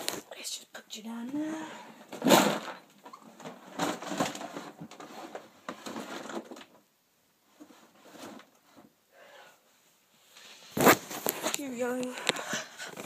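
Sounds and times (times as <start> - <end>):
rustling and light clattering: 2.0 - 9.0, 9.8 - 13.0.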